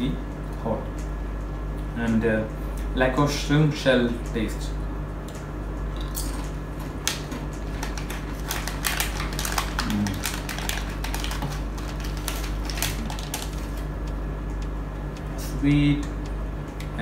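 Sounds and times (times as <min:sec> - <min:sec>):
low room hum: 0:00.0 - 0:17.0
plastic packet crinkling: 0:07.0 - 0:14.0
crunchy snack being chewed: 0:07.1 - 0:13.8.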